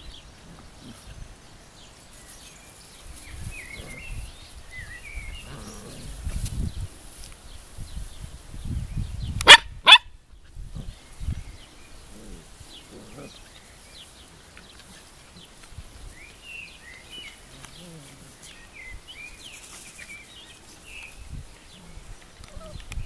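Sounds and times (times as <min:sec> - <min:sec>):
dog barking: 0:09.5 - 0:10.1.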